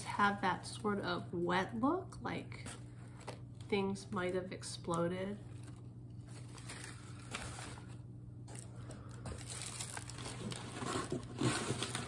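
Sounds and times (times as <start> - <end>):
newspaper rustling and crinkling: 5.5 - 12.0.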